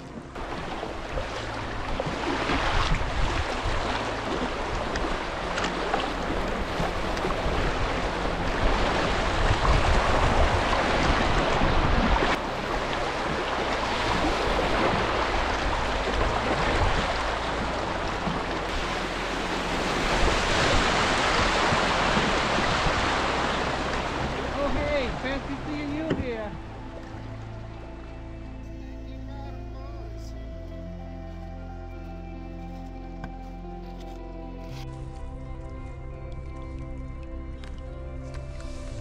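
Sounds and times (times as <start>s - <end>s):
river rapid rushing: 0.0s - 28.0s
wind rumble on microphone: 0.0s - 28.4s, 34.7s - 39.0s.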